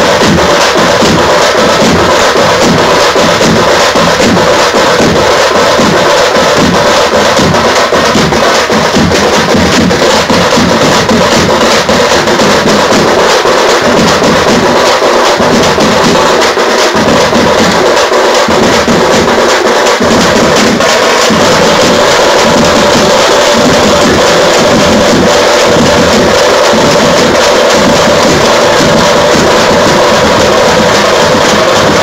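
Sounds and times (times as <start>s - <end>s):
frame drums beaten with sticks: 0.0s - 32.0s
large bass drums: 0.0s - 32.0s.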